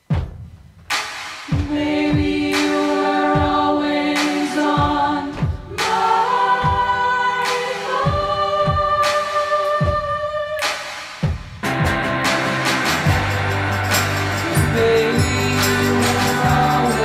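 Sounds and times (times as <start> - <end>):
slow drum beat: 0.0 - 17.0
choir singing held chords: 1.5 - 10.6, 11.7 - 17.0
rock band playing: 11.6 - 17.0.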